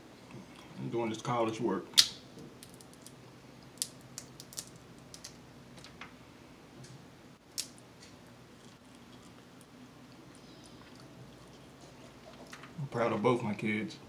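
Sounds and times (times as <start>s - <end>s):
crab shell cracking: 2.0s - 5.4s, 7.4s - 11.8s.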